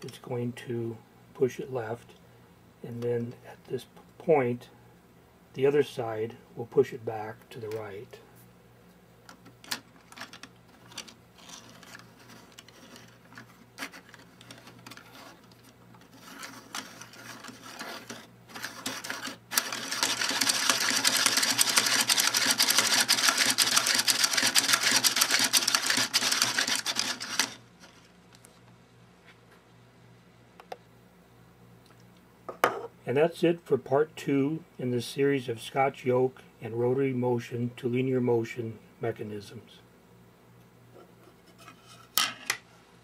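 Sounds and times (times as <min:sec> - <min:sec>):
plastic mechanism clicking and clattering: 0:09.3 - 0:28.5.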